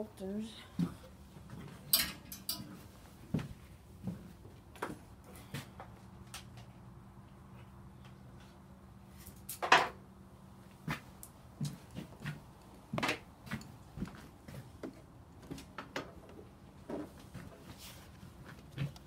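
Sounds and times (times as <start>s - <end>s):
knocks and clatter of handling: 0.8s - 2.8s.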